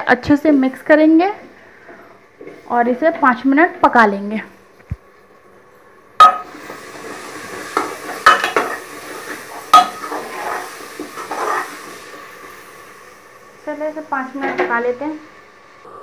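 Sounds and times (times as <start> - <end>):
frying sizzle: 0.2 - 16.0
metal spoon scraping and clanking pot: 9.8 - 11.7.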